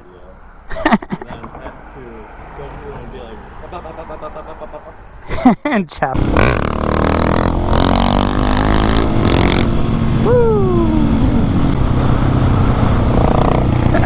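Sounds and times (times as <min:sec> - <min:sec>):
riding wind noise: 0:06.1 - 0:14.0.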